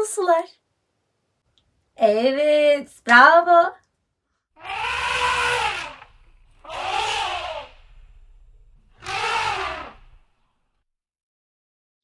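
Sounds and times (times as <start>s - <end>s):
elephant trumpeting: 4.6s - 10.3s
low rumble: 5.6s - 10.7s.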